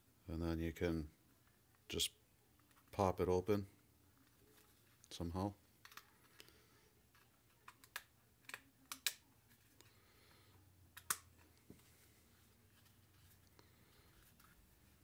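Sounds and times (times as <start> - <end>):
plastic housing clicks and snaps: 7.5 - 9.2.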